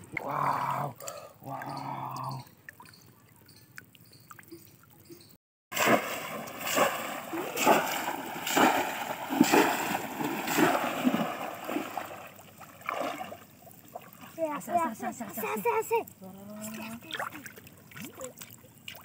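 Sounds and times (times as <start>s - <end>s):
faint water drips: 0.0s - 19.0s
fish trap splashing into water: 5.7s - 13.4s.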